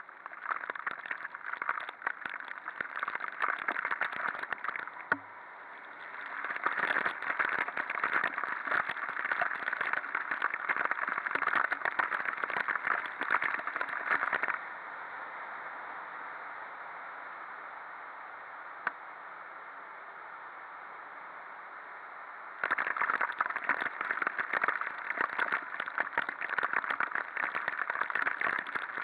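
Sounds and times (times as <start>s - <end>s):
heavy rain pattering on camera: 0.0s - 14.7s, 22.6s - 29.0s.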